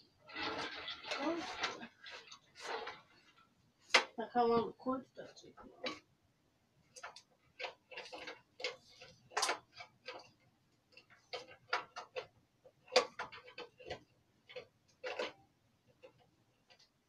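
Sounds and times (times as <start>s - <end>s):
small objects clicking and tapping: 6.9s - 17.0s.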